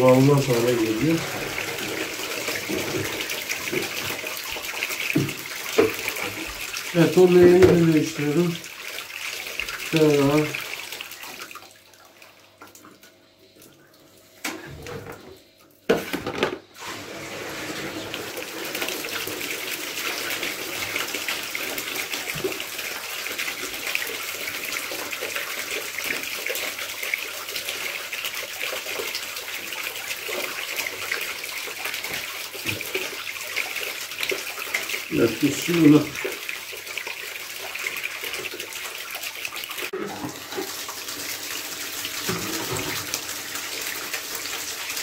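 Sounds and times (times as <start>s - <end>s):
water pouring into plastic basin: 0.0s - 12.9s, 16.2s - 45.0s
plastic basin clunks: 7.4s - 7.9s, 15.9s - 16.6s.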